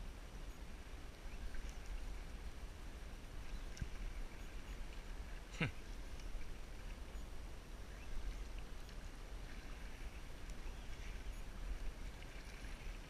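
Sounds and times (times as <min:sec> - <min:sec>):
faint clicks: 0:03.2 - 0:05.1, 0:06.1 - 0:07.2, 0:09.9 - 0:13.0.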